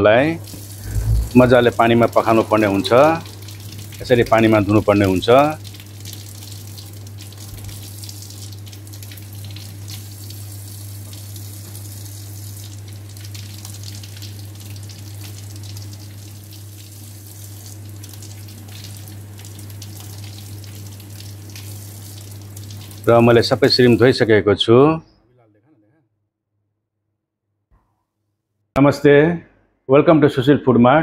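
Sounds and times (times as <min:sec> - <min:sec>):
steady low hum: 0:00.0 - 0:24.4.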